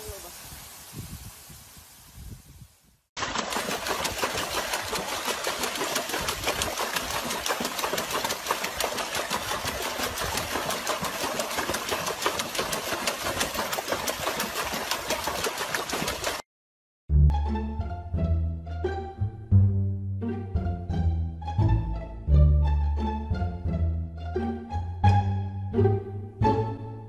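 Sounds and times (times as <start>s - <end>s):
water splashing from dog paddling: 3.2s - 16.4s.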